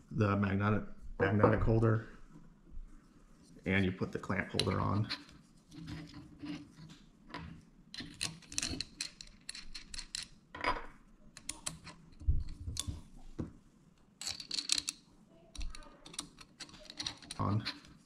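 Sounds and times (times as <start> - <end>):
metal and plastic parts clinking: 7.9 - 10.4, 14.2 - 15.0, 15.6 - 18.0.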